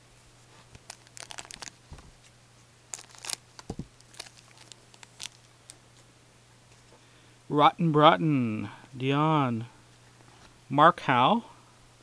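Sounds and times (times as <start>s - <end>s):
cards rustling: 0.7s - 2.3s, 2.9s - 5.8s
wrapper crinkling: 0.8s - 2.2s, 2.9s - 5.8s.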